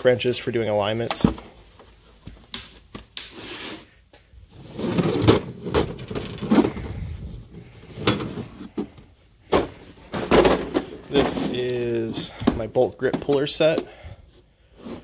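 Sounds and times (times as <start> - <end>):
plastic cases knocking in metal locker: 9.5 - 11.5.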